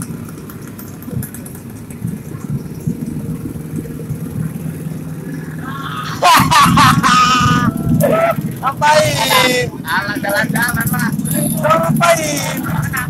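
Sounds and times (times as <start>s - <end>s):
motorcycle engines idling: 0.0s - 13.0s
men shouting: 5.6s - 13.0s.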